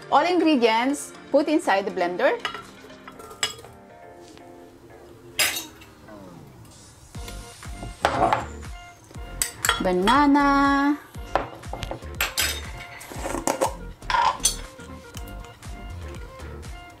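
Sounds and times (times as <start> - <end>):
bowl and spoon clinking: 2.4 - 3.8, 9.4 - 10.2, 11.3 - 15.6.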